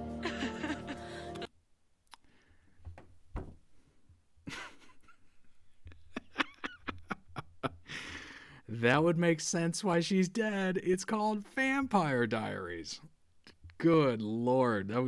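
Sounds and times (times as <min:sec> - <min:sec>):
man's stifled laughter: 0:00.2 - 0:01.5, 0:04.4 - 0:07.9
thump: 0:02.9 - 0:03.6.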